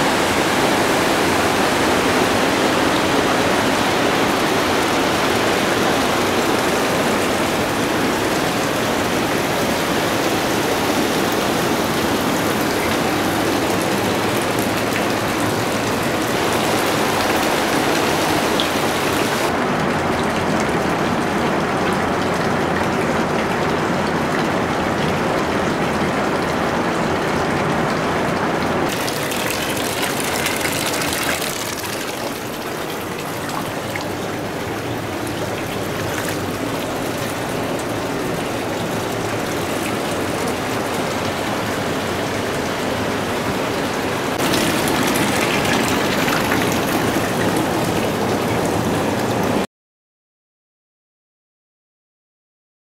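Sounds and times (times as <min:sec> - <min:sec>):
water rushing: 0:00.0 - 0:49.7.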